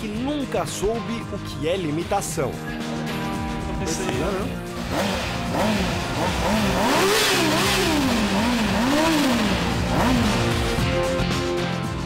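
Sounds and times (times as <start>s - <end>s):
music: 0.0s - 12.0s
motorcycle engine revving: 3.2s - 12.0s.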